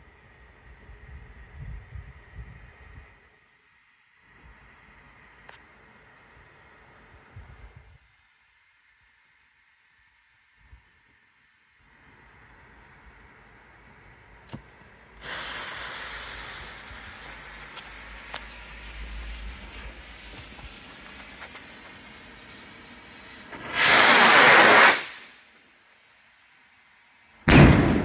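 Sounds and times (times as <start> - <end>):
firework hissing: 15.2 - 26.4.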